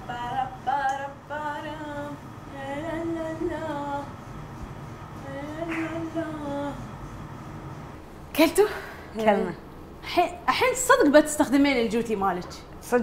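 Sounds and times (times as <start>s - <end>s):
woman singing softly: 0.0s - 4.2s, 5.2s - 6.9s.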